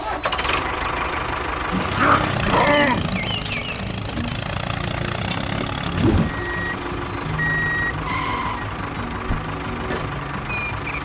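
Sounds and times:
tractor diesel engine running: 0.0 - 11.0
electronic reversing beeps: 6.2 - 6.8.

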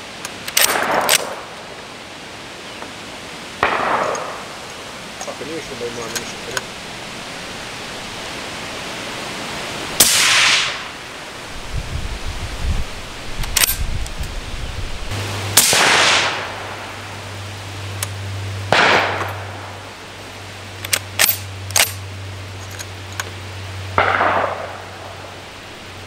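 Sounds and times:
rifle shots with echo: 0.6 - 1.5, 3.6 - 4.5, 10.0 - 10.9, 15.6 - 16.8, 18.7 - 19.6, 24.0 - 25.0.

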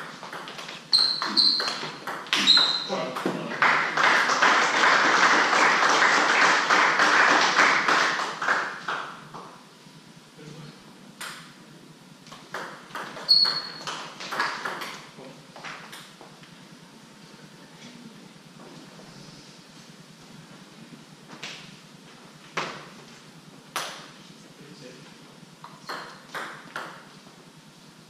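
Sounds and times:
table tennis ball bouncing: 0.0 - 3.9, 12.3 - 16.2, 25.6 - 27.1
spectators applauding: 3.4 - 9.1.

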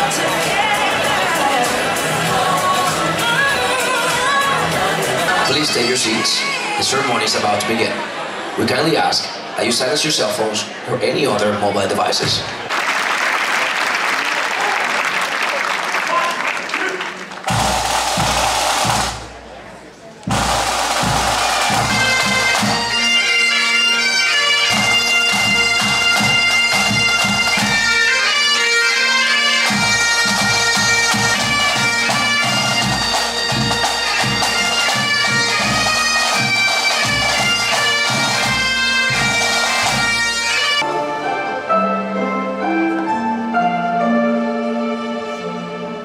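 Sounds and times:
snare and bass drums: 17.5 - 19.5, 20.2 - 22.9
bagpipes with drone: 20.3 - 42.0
soft music: 40.2 - 46.0.

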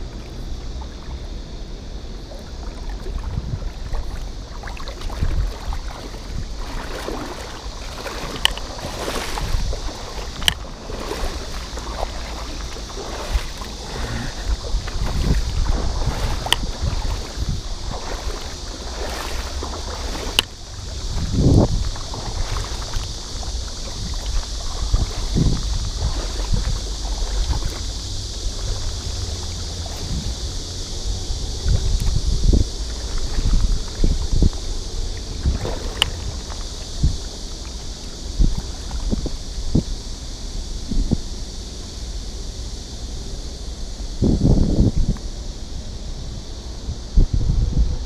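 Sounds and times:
river water rushing: 0.0 - 31.8, 32.7 - 39.3
wind rumbling on microphone: 0.0 - 48.0.

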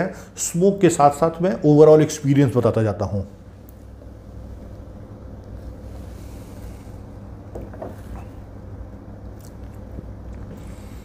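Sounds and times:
low room hum: 0.0 - 11.0
glass set down on table: 7.5 - 8.2
mouth and swallowing sounds: 9.2 - 10.9.

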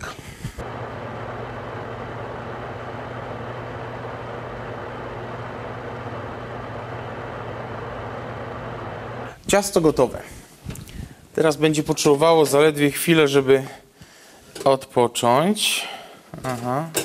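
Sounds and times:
oven fan humming: 0.4 - 9.4.

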